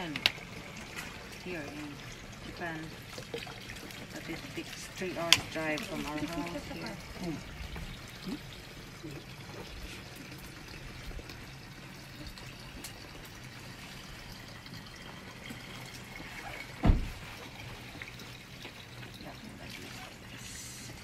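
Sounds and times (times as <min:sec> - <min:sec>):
water running into plastic bottle: 0:00.0 - 0:21.0
loud thump: 0:16.8 - 0:17.2.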